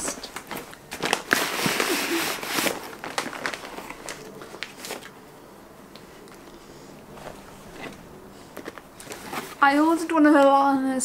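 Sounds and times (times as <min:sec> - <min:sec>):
packing paper rustling: 0:00.0 - 0:05.2, 0:07.2 - 0:10.0.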